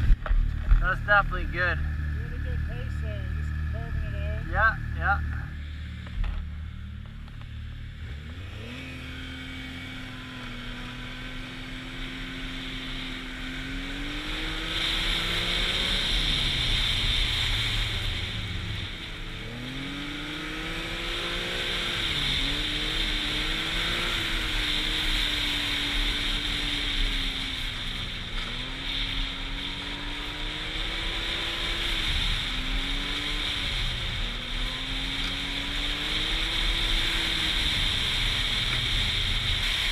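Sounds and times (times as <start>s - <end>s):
snowmobile engine revving: 0.7s - 5.9s, 8.0s - 39.9s.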